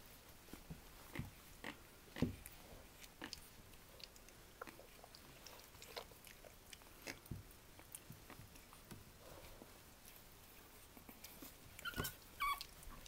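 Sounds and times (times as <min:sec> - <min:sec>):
puppies scuffling: 0:07.3 - 0:13.0.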